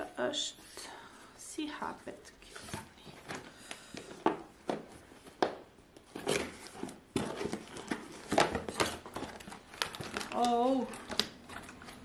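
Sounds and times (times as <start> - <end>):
packaging rustling: 2.6 - 12.0.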